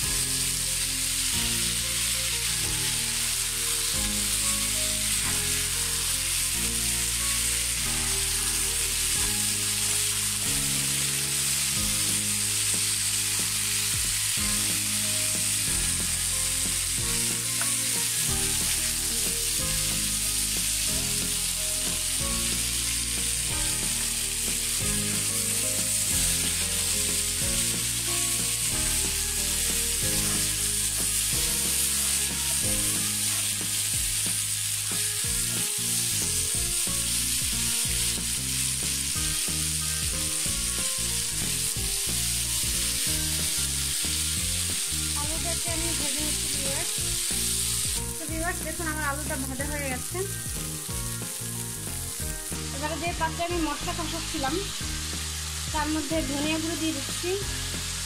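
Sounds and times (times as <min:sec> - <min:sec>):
food sizzling in oil: 0:00.0 - 0:58.0.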